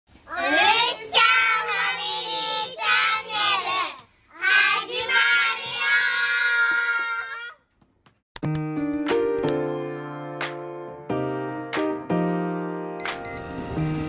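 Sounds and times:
children singing a jingle: 0:00.3 - 0:07.2.

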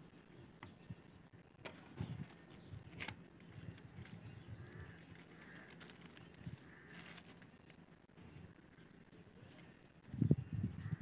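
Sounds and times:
quiet outdoor background: 0:00.0 - 0:11.0
plastic sachets clicking and crinkling: 0:02.1 - 0:07.8.

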